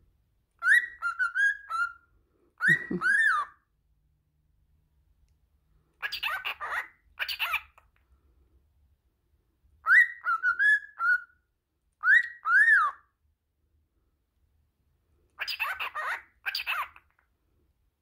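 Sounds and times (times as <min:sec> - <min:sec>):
cockatiel whistling: 0:00.6 - 0:02.0, 0:09.8 - 0:11.4, 0:12.0 - 0:13.0
cockatiel chattering: 0:06.0 - 0:07.8, 0:15.4 - 0:17.2.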